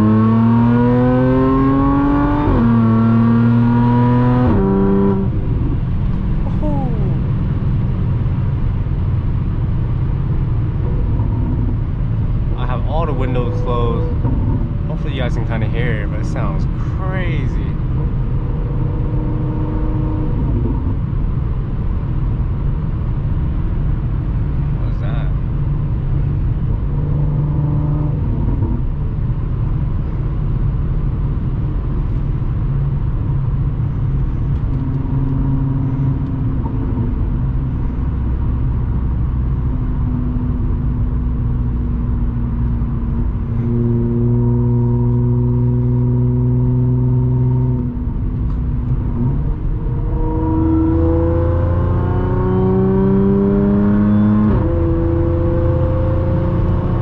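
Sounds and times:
car engine heard from cabin: 0:00.0 - 0:57.0.

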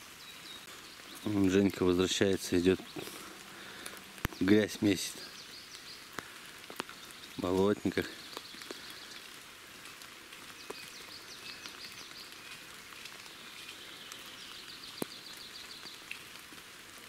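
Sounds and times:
rain falling: 0:00.0 - 0:17.0
rain drop ticks: 0:00.4 - 0:17.0.

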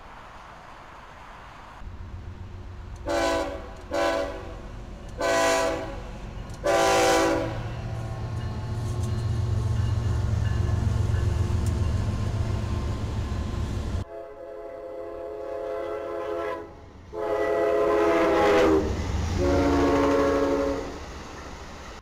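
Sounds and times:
locomotive air horn blasts: 0:03.0 - 0:04.6, 0:05.2 - 0:06.0, 0:06.6 - 0:07.8, 0:14.0 - 0:20.9.

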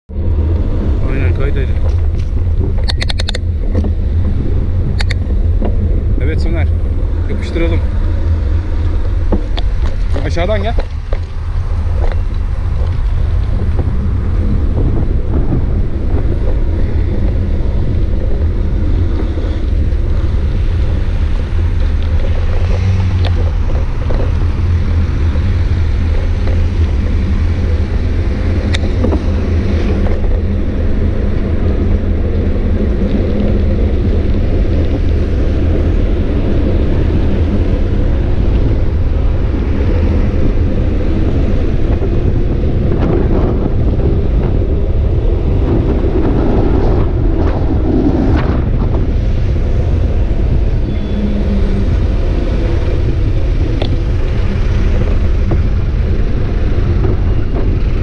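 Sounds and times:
road and traffic noise: 0:00.0 - 0:58.0
wind buffeting microphone: 0:00.1 - 0:58.0.

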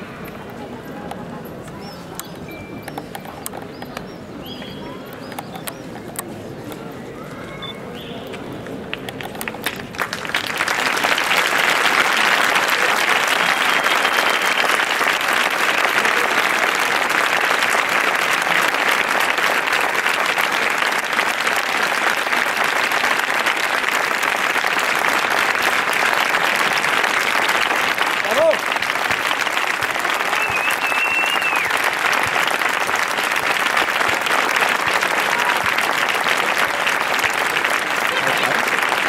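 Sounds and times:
crowd applauding: 0:08.8 - 0:39.0.

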